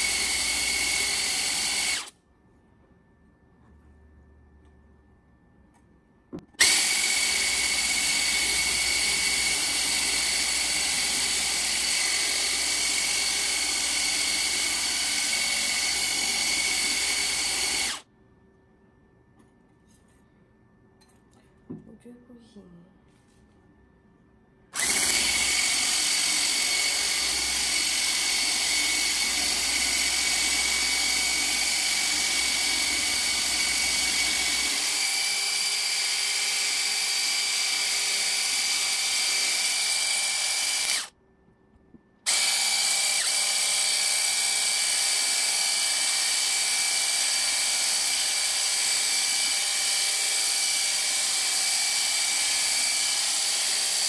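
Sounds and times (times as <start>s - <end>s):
electric whisk motor whine: 0.0s - 2.1s, 6.6s - 18.0s, 24.8s - 41.1s, 42.3s - 54.0s.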